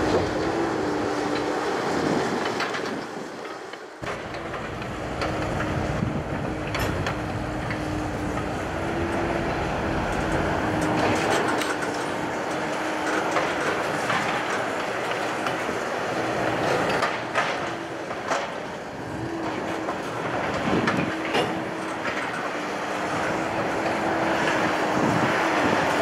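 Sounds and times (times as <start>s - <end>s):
engine drone: 0.0s - 26.0s
train wheels clicking over rail joints: 1.2s - 9.2s, 10.0s - 26.0s.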